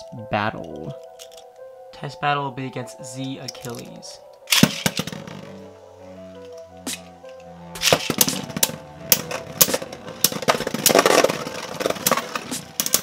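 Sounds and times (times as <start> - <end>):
instrumental background music: 0.0 - 13.0
spinning tops clashing: 7.8 - 13.0.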